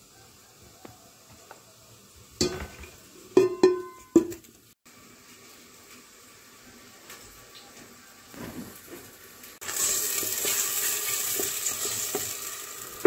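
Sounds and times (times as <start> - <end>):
kitchenware clanking: 2.4 - 4.5.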